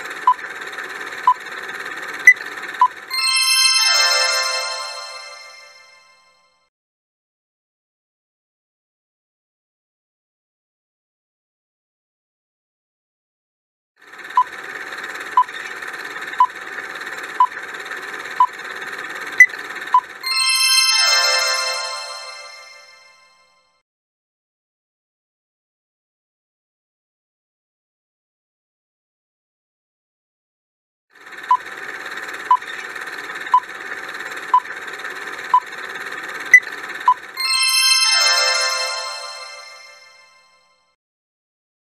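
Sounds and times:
bright chiming jingle: 0:03.1 - 0:06.4, 0:20.2 - 0:23.5, 0:37.4 - 0:40.6.

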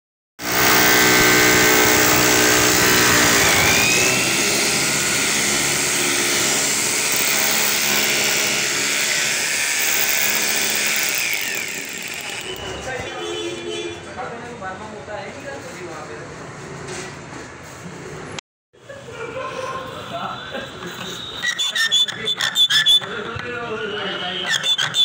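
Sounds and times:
electric drill boring into wood: 0:00.4 - 0:12.8.

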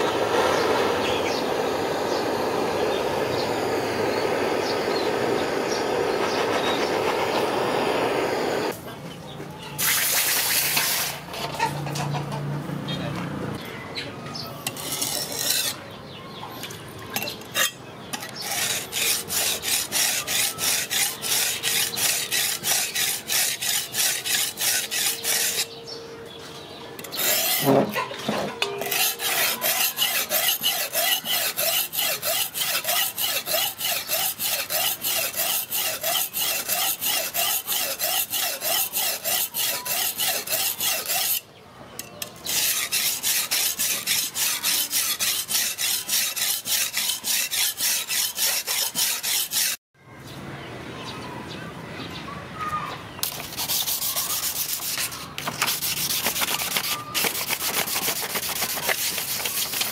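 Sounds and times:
knife rasping on a whetstone: 0:14.7 - 0:15.8, 0:17.6 - 0:25.8, 0:27.0 - 0:28.0, 0:28.8 - 0:41.4, 0:42.4 - 0:49.8, 0:53.2 - 0:59.9.

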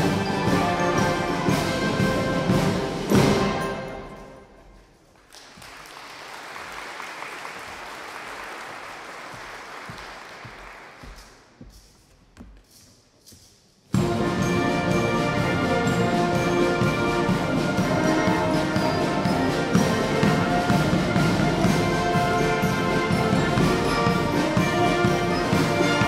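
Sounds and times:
brass marching band: 0:00.0 - 0:04.5, 0:13.9 - 0:26.0
audience applauding: 0:05.2 - 0:11.4.

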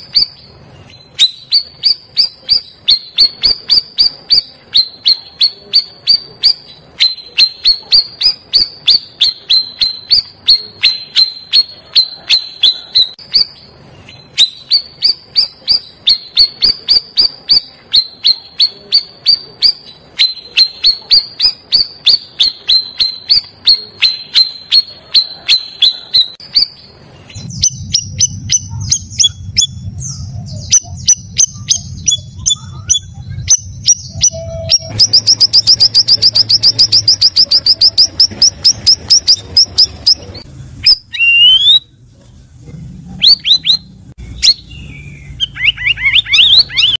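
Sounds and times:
fast bird trill: 0:00.0 - 0:41.8, 0:43.2 - 0:47.0
bird singing chirps and whistles: 0:00.0 - 0:41.9, 0:43.2 - 0:47.0
low rumble: 0:26.8 - 0:41.1.

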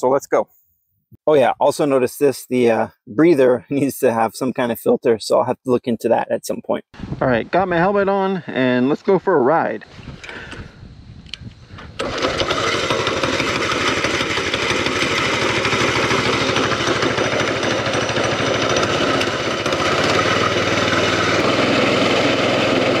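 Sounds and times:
starter clicks: 0:10.2 - 0:10.6
small engine running: 0:12.0 - 0:23.0.

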